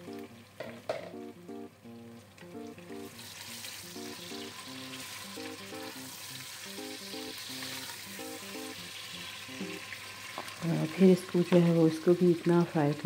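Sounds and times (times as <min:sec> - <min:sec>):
meat sizzling in hot oil: 0:03.0 - 0:13.0.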